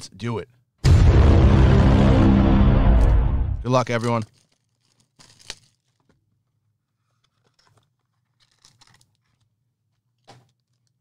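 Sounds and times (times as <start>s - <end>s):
cardboard and wrapper rustling: 3.9s - 6.2s.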